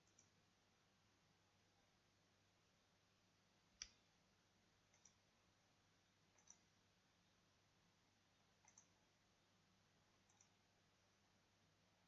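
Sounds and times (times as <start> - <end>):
computer mouse clicks: 0.0 - 0.4, 3.8 - 4.0, 4.9 - 5.2, 6.3 - 6.7, 8.6 - 9.0, 10.2 - 10.6.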